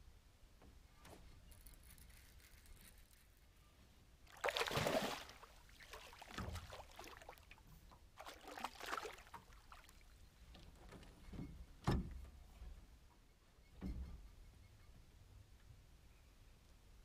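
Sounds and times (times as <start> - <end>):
fish splashing in water: 4.3 - 7.6, 8.2 - 10.1.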